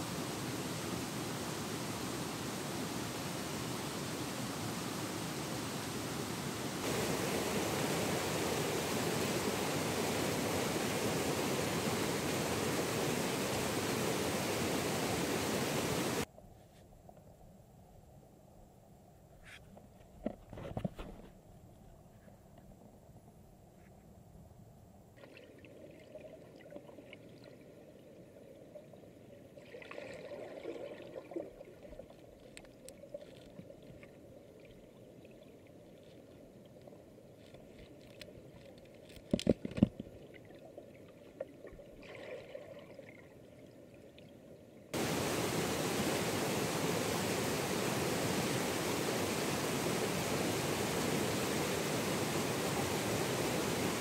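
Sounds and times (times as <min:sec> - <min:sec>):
river rushing over rapids: 0:00.0 - 0:16.3, 0:45.0 - 0:54.0.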